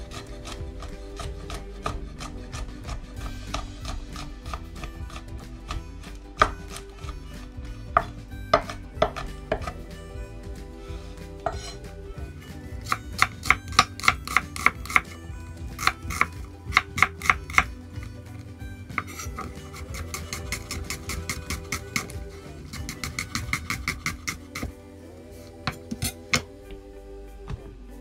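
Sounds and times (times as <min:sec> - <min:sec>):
knife chopping on wooden board: 0:00.0 - 0:07.2, 0:07.9 - 0:09.8, 0:11.4 - 0:11.8, 0:12.8 - 0:18.1, 0:18.9 - 0:24.7.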